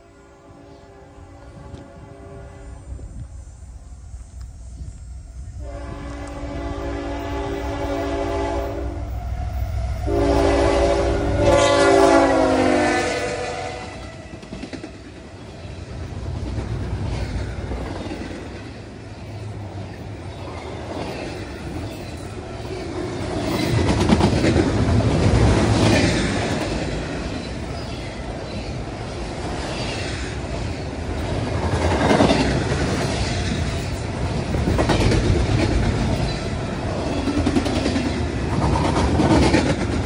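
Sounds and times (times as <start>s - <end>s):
locomotive horn: 0.0s - 3.1s, 5.5s - 14.6s
freight cars rumbling and clattering: 30.5s - 40.0s.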